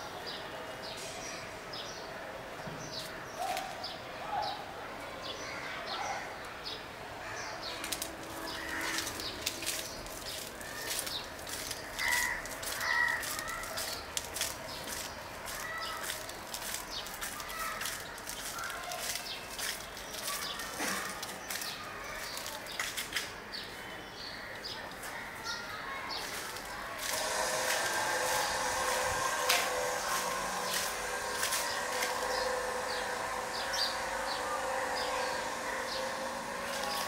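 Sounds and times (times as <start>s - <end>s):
birds calling: 7.3s - 22.8s
crows cawing: 8.3s - 10.0s, 10.6s - 14.4s.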